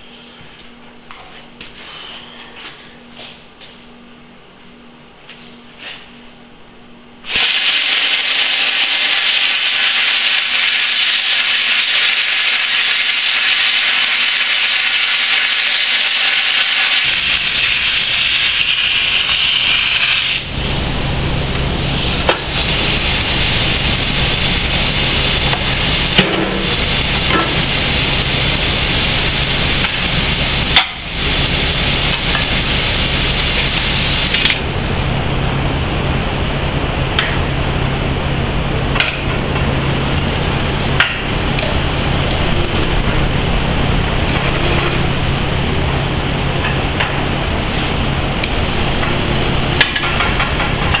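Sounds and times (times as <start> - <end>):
low steady hum: 0.0 - 51.0
plasma cutter hissing: 7.3 - 34.7.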